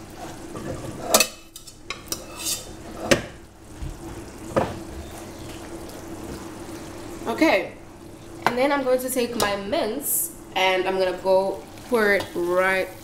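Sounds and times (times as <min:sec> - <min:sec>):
steady low hum: 0:00.0 - 0:13.0
spoon scraping pot: 0:00.2 - 0:03.3.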